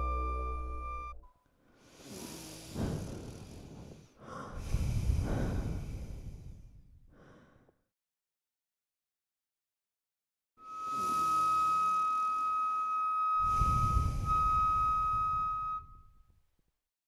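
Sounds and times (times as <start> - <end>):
heavy human breathing: 1.6 - 7.8, 13.4 - 15.8.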